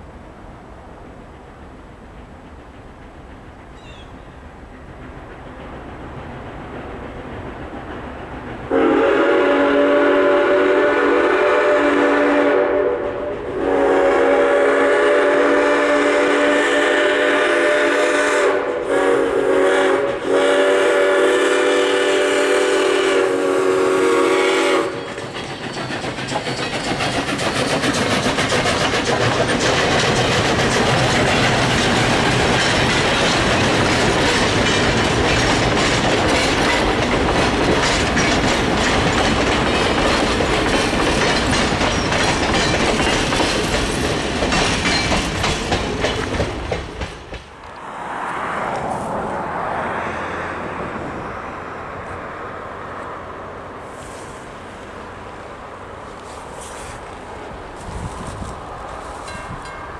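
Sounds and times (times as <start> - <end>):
train running gear rushing: 1.4 - 47.9, 53.9 - 59.9
wheels clacking over rail joints: 1.6 - 9.9, 24.6 - 47.8
steam locomotive chime whistle: 8.7 - 25.2.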